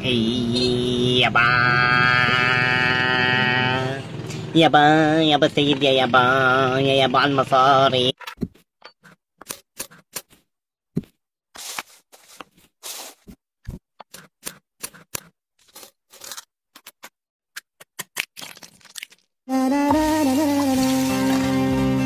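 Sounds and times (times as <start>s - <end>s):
hands handling objects: 11.0s - 14.3s.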